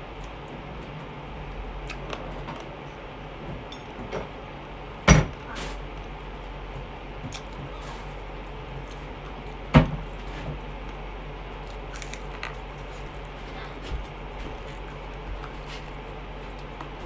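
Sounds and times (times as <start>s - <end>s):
steady low hum: 0.0s - 17.0s
person chewing food: 5.8s - 17.0s.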